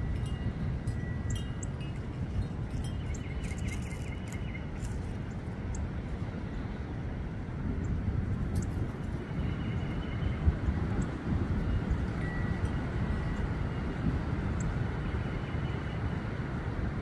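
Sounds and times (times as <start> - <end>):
small birds chirping: 2.8 - 5.8.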